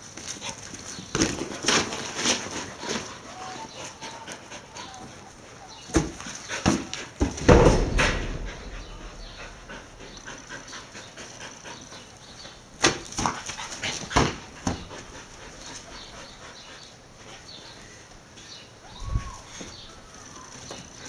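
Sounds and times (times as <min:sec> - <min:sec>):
dogs barking and whimpering: 0:02.6 - 0:06.5, 0:13.4 - 0:17.8.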